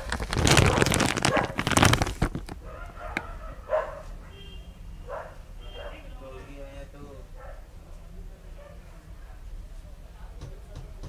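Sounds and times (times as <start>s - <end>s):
loud crackling rustle: 0.0s - 3.2s.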